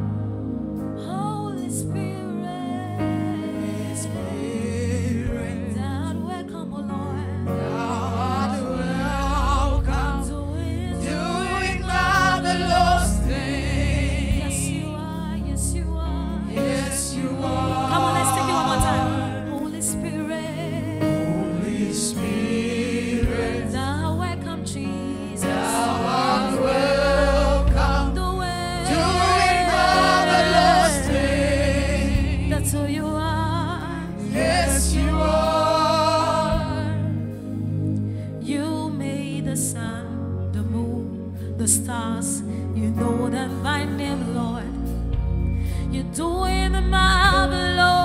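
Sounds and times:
instrumental chords and bass: 0.0s - 40.9s, 43.1s - 48.0s
backing singers: 7.7s - 15.1s, 16.4s - 24.1s, 25.1s - 32.9s, 33.9s - 37.1s
woman singing lead: 14.3s - 21.2s.

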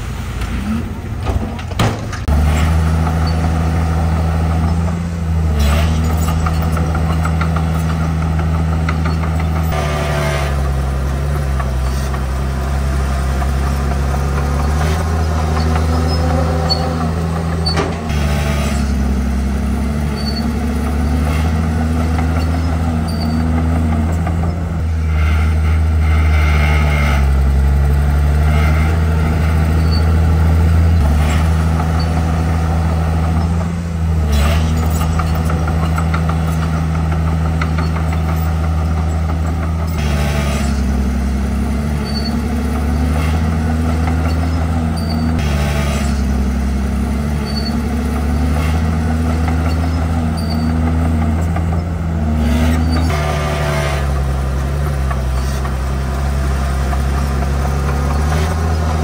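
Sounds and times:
bulldozer diesel engine under load: 0.0s - 59.0s.

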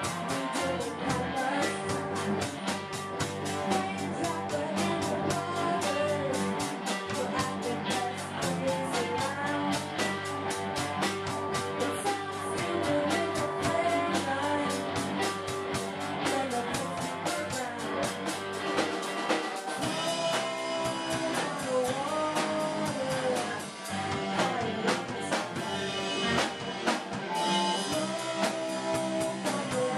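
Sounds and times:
woman singing into microphone: 0.0s - 18.5s, 19.6s - 26.4s, 27.4s - 29.9s
drum kit: 0.0s - 29.9s
electric guitar: 0.0s - 29.9s.

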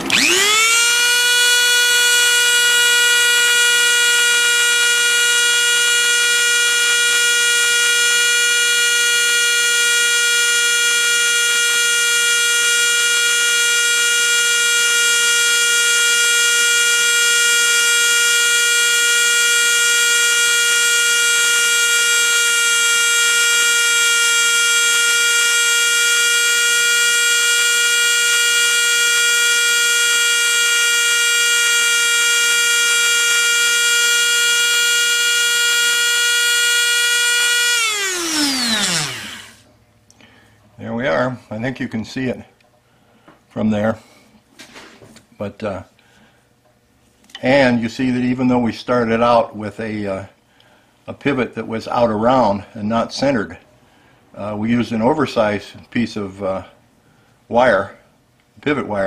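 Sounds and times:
rotary tool whining: 0.0s - 39.7s.

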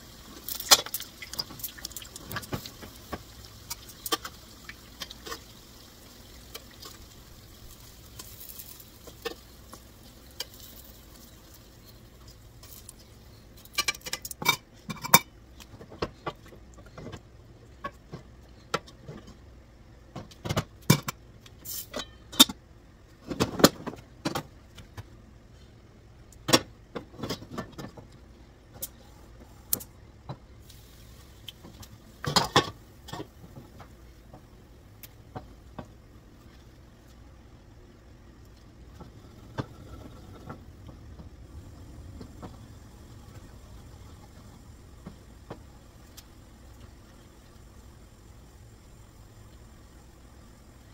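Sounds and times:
oil sizzling: 0.0s - 15.2s, 30.6s - 37.1s, 38.3s - 50.9s.

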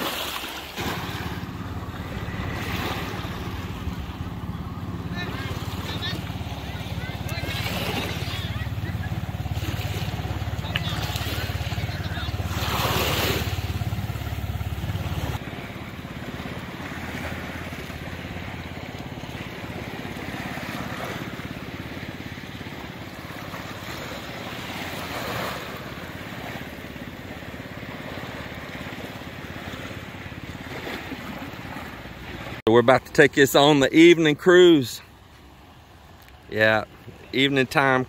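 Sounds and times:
waves washing over pebbles: 0.0s - 32.6s.

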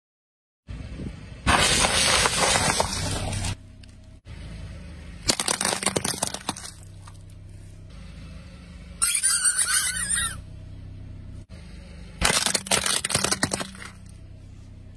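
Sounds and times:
low engine hum: 0.7s - 14.9s
tyre crunching paper boxes: 1.5s - 3.6s
tyre crushing soda cans: 1.5s - 3.6s, 5.3s - 6.9s, 12.2s - 14.1s.

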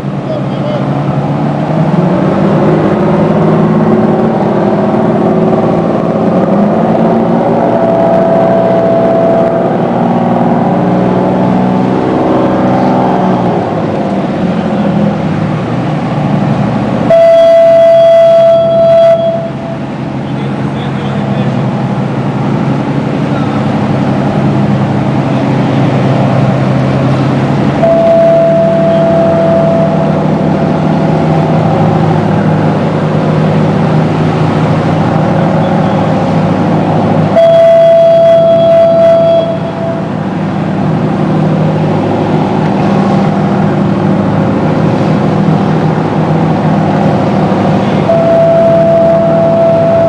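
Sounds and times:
boat diesel engines running: 0.0s - 50.0s
fog horn blast: 7.5s - 10.1s, 17.1s - 19.9s, 27.8s - 30.9s, 37.3s - 40.4s, 48.0s - 50.0s.

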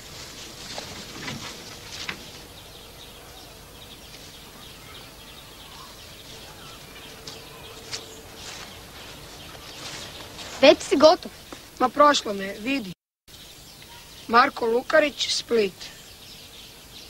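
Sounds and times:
snaps and rustles in undergrowth: 0.0s - 4.6s, 5.7s - 12.4s
faint bird chirps: 1.2s - 11.6s, 12.3s - 17.0s.

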